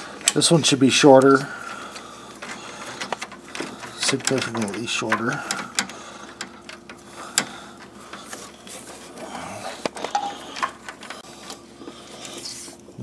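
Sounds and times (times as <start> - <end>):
hand tools clicking on metal: 0.2 - 8.5, 9.8 - 11.2.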